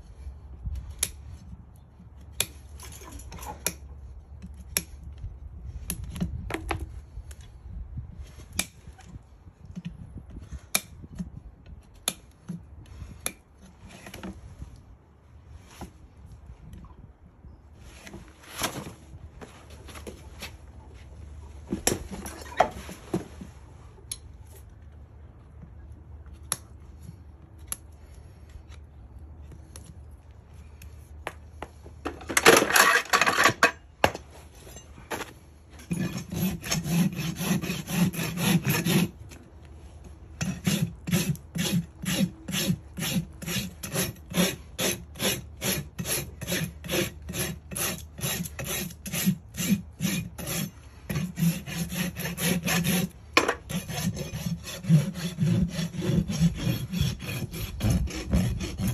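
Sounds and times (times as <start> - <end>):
rasp filing hoof: 35.8 - 39.3, 40.4 - 58.9.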